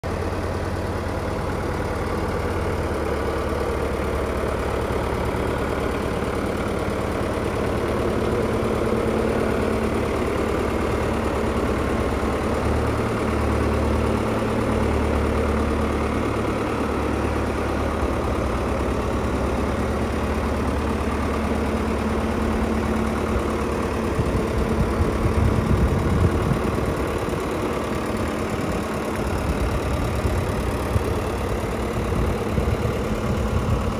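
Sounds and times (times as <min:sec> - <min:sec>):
diesel engine idling: 0:00.0 - 0:33.9
uneven low rumbling: 0:24.1 - 0:33.9.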